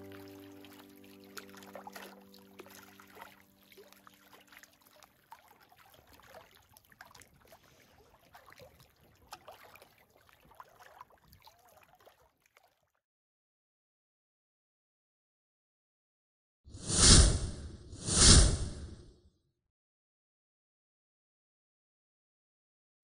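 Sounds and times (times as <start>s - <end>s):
background music: 0.0s - 3.7s
small waves lapping on rocks: 0.0s - 12.8s.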